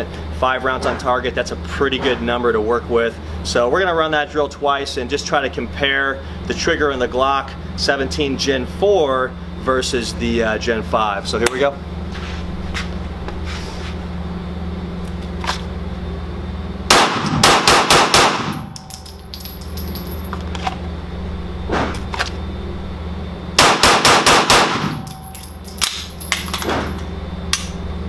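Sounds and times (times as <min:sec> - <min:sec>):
steady low hum: 0:00.0 - 0:28.0
pistol shots ringing indoors: 0:16.9 - 0:19.6, 0:23.6 - 0:26.7.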